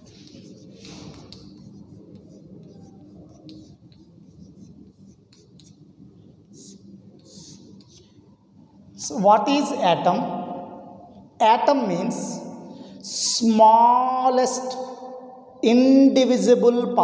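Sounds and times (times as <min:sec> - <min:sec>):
chalk scratching on blackboard: 0:00.0 - 0:08.2.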